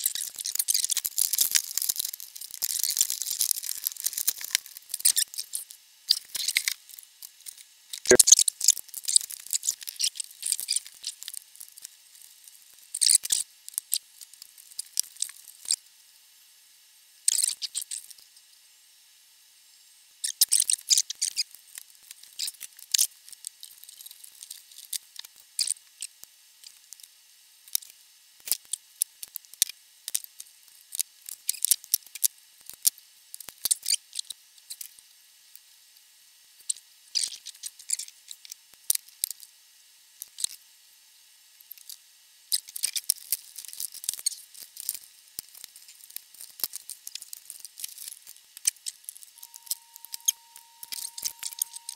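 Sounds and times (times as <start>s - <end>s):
hand tools clicking and snipping wire: 49.4s - 51.9s
metal parts ticking: 49.4s - 51.9s.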